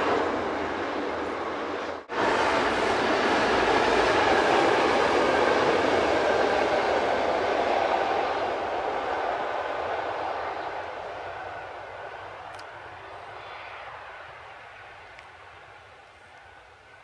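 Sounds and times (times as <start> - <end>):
train wheels rumbling on rail: 0.0 - 17.0.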